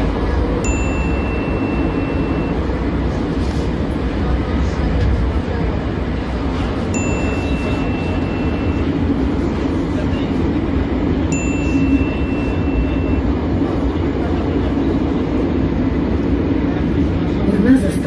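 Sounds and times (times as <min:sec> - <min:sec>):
train rumble inside carriage: 0:00.0 - 0:18.0
thin high tone: 0:00.6 - 0:03.0, 0:06.8 - 0:09.6, 0:11.2 - 0:13.9.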